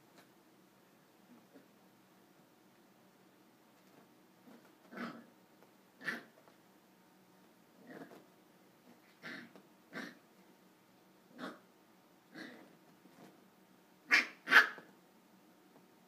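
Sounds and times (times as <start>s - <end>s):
puppy barking: 6.0s - 6.3s, 14.1s - 14.9s.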